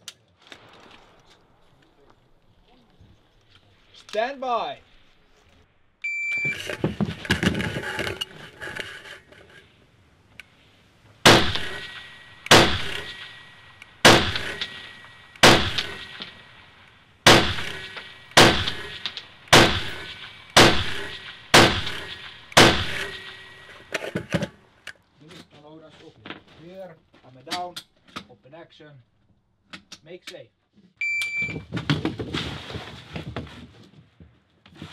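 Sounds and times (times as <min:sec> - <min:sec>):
knocks and rattles of gear: 0:06.4 - 0:09.6
rifle shots with ringing echo: 0:11.2 - 0:23.9.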